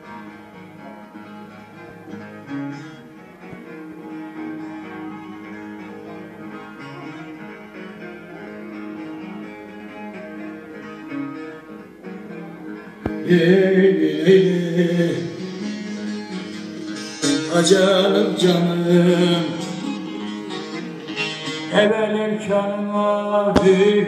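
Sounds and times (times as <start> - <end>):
plucked lute melody with drone: 0.0 - 24.0.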